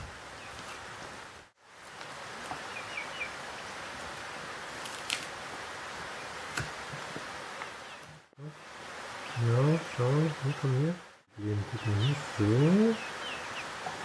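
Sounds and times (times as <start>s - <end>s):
steady hissing noise: 0.0s - 14.0s
chickens chirping: 2.4s - 4.0s, 9.2s - 14.0s.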